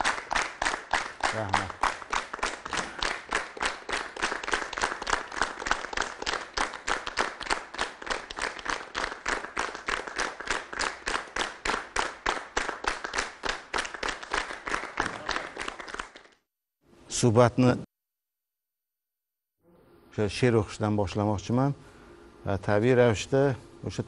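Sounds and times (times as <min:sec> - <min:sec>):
audience clapping in unison: 0:00.0 - 0:16.4.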